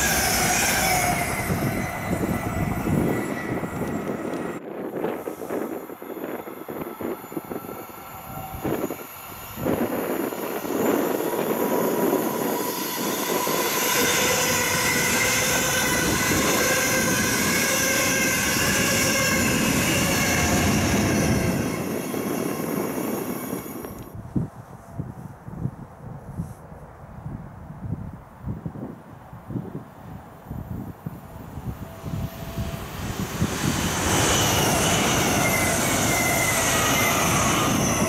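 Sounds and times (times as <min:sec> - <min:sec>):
high-pitched ringing: 0:00.0 - 0:04.6, 0:31.9 - 0:38.0
train wheels on rails: 0:00.0 - 0:24.2, 0:31.1 - 0:38.0.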